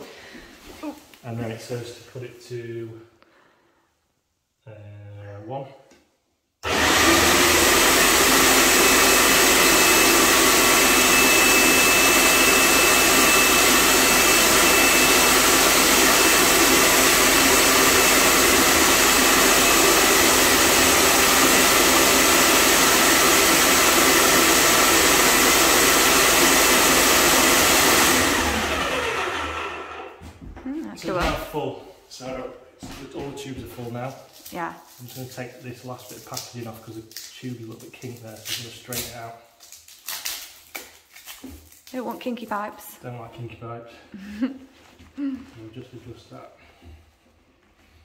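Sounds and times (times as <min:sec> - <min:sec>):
paint sprayer pump motor: 0:06.6 - 0:30.2.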